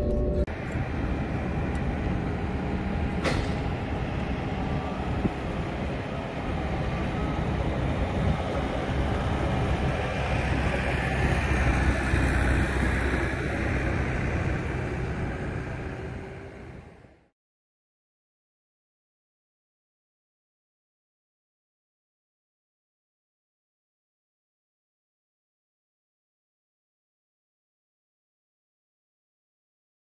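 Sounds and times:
jet aircraft rumble and hiss: 0:00.0 - 0:17.3.

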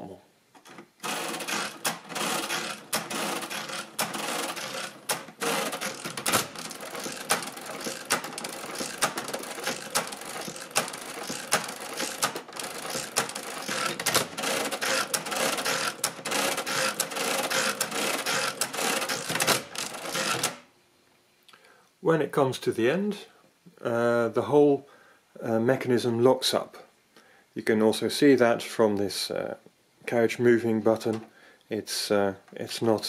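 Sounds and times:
calculator carriage shifting: 0:00.7 - 0:20.6
mechanical calculator gears clattering: 0:00.7 - 0:20.6
sharp calculator clicks: 0:01.0 - 0:20.6.

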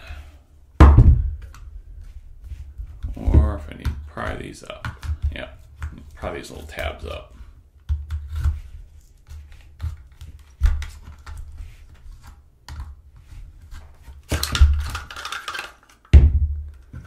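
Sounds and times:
dull knocks: 0:00.8 - 0:01.4
tool scraping plastic: 0:01.4 - 0:16.1.

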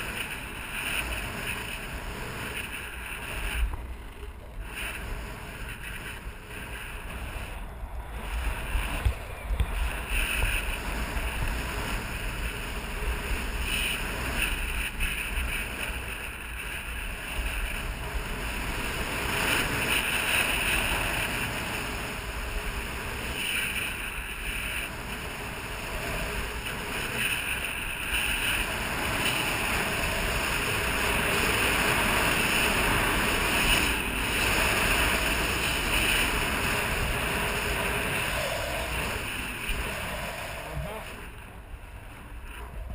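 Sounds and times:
skis sliding over snow: 0:00.0 - 0:42.9
wind buffeting microphone: 0:00.0 - 0:42.9.

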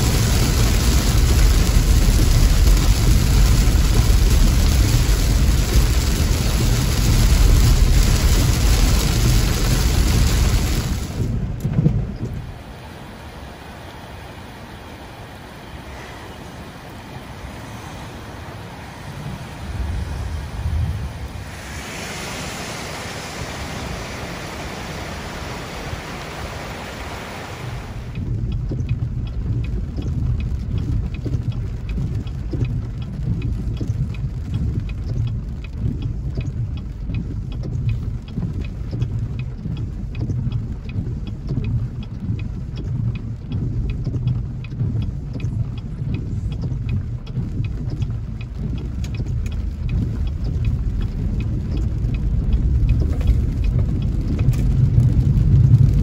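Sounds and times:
raindrops ticking on glass: 0:00.0 - 0:12.7, 0:28.0 - 0:56.0
rushing floodwater: 0:00.0 - 0:28.3
car engine and tyre rumble: 0:00.0 - 0:56.0.

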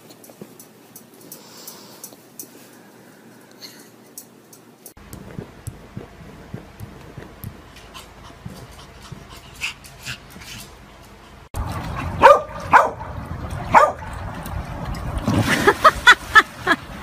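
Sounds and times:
large dogs barking: 0:12.1 - 0:14.1.

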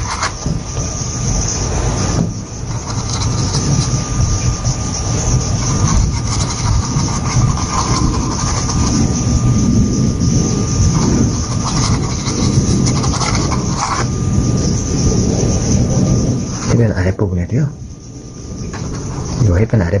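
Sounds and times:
brush scrubbing on canvas: 0:00.0 - 0:09.8, 0:10.4 - 0:14.8.

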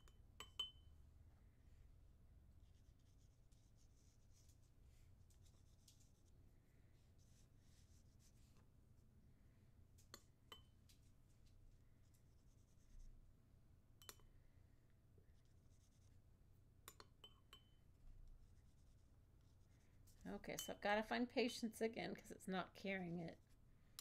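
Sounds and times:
pencil scratching on paper: 0:18.4 - 0:19.8.

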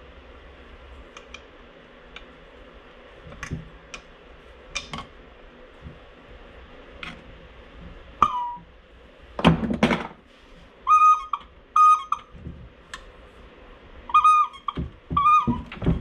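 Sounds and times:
vacuum pump whistling tones: 0:08.2 - 0:08.7, 0:10.8 - 0:12.5, 0:14.0 - 0:16.0.

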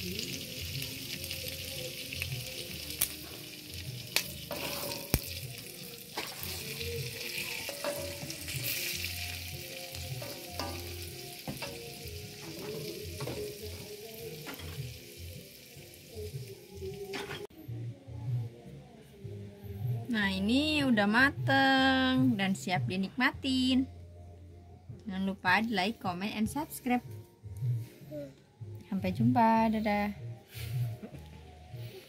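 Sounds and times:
food sizzling in a wok: 0:00.0 - 0:17.4
metal spatula scraping: 0:04.4 - 0:13.7.

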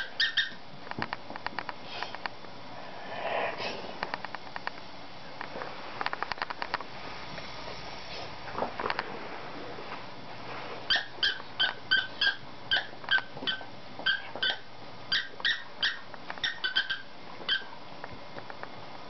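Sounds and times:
squeaker toy squeaking: 0:00.0 - 0:00.6, 0:10.9 - 0:17.7.

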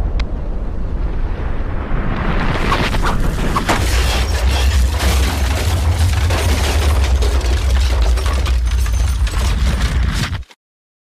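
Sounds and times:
deep volcanic rumble: 0:00.0 - 0:08.6
crackles: 0:00.9 - 0:10.6.

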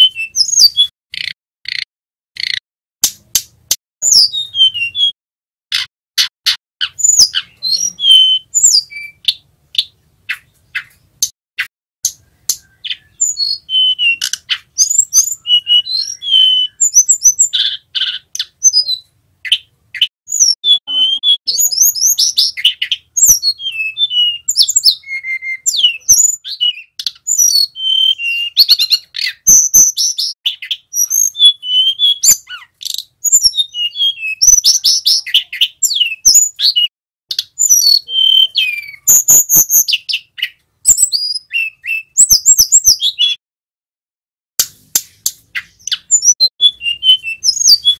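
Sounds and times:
bird singing whistles and trills: 0:00.0 - 0:01.8, 0:04.0 - 0:05.2, 0:05.8 - 0:43.4, 0:45.1 - 0:47.9
sharp bird clicking notes: 0:01.1 - 0:03.8, 0:09.8 - 0:13.1, 0:14.2 - 0:14.7.

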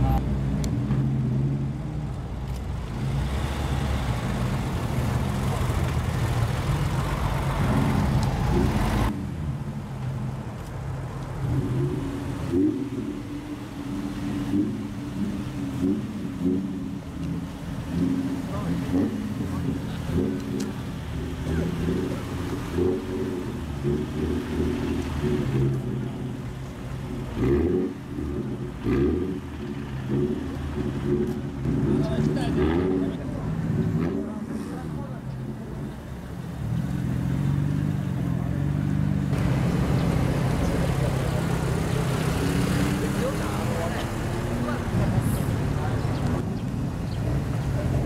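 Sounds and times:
loud low car engine pulling away: 0:00.0 - 0:48.0
quieter car engine rolling: 0:00.0 - 0:48.0.

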